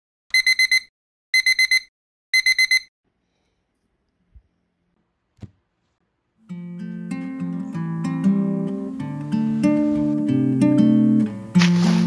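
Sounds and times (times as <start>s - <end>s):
smartphone alarm beeping: 0.3s - 2.9s.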